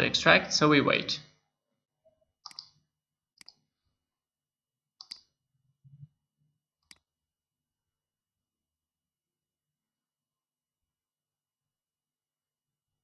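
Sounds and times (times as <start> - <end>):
computer mouse clicks: 2.4 - 2.8, 3.4 - 3.7, 5.0 - 5.4, 6.8 - 7.1.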